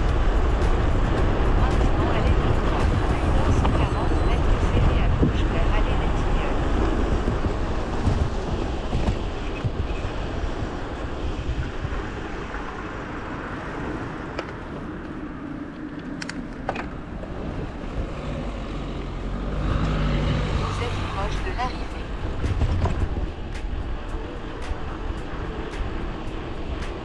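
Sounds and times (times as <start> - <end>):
wind buffeting microphone: 0.0 - 27.0
car engine: 14.2 - 27.0.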